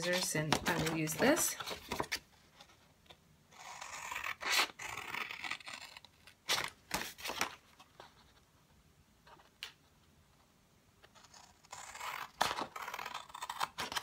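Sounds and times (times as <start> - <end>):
scissors cutting cardstock: 0.0 - 2.1.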